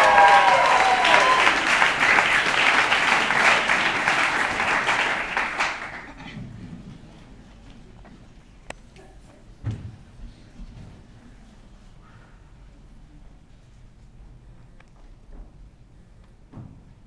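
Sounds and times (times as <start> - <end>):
high cheering voices: 0.0 - 6.0
audience applauding: 0.0 - 6.2.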